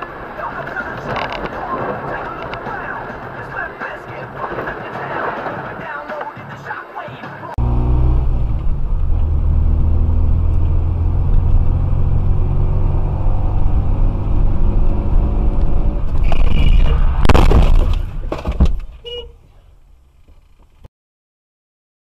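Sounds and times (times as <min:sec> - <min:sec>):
car engine and road rumble: 0:07.5 - 0:20.9
loud bang and clatter: 0:16.1 - 0:19.0.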